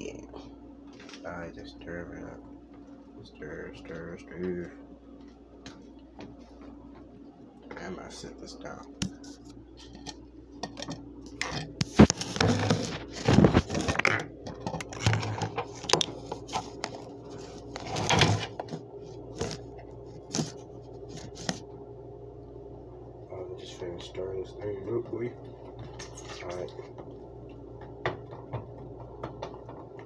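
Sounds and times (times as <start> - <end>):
utensil scraping container: 10.8 - 16.8.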